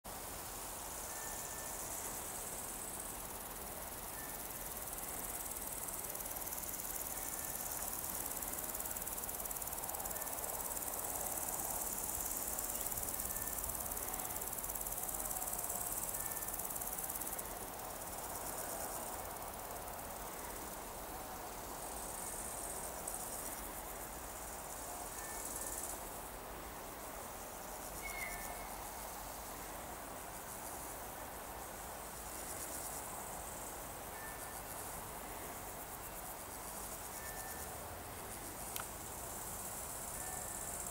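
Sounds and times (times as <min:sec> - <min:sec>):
insects chirring: 0:00.4 - 0:40.9
faint high chirps: 0:28.0 - 0:28.8.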